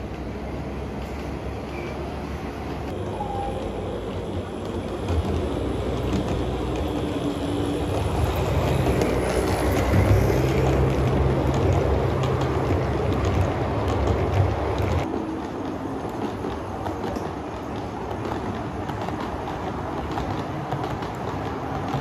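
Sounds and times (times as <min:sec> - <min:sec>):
train wheels rumbling: 0:00.0 - 0:22.0.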